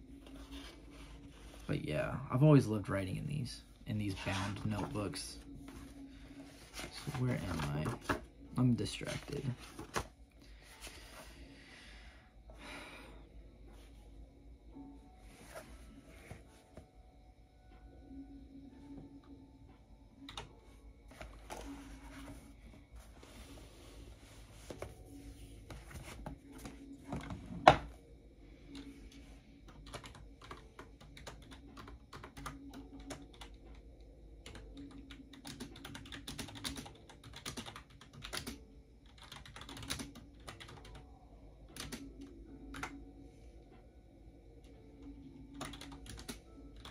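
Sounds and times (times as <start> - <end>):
typing on computer keyboard: 29.6 - 33.7, 34.4 - 41.0, 41.7 - 43.0, 45.5 - 46.9.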